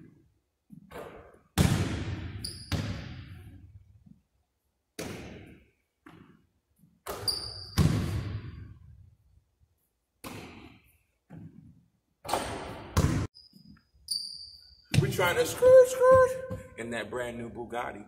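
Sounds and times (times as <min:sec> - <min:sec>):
basketball bouncing on wooden floor: 0:00.7 - 0:03.5, 0:07.0 - 0:08.6, 0:12.3 - 0:13.3, 0:14.9 - 0:16.7
sneaker squeaks: 0:02.3 - 0:03.4, 0:07.0 - 0:08.1, 0:12.3 - 0:16.7.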